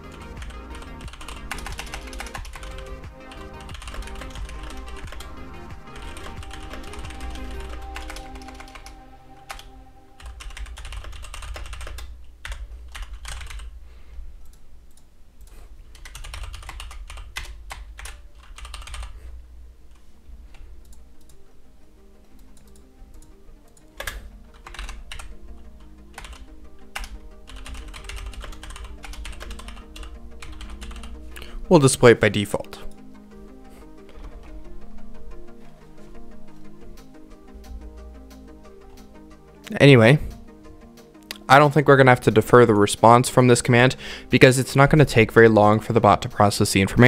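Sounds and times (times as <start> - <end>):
typing on computer keyboard: 0.0 - 13.8, 14.5 - 19.2, 22.4 - 25.4, 26.1 - 31.5
quiet background music: 0.0 - 47.0.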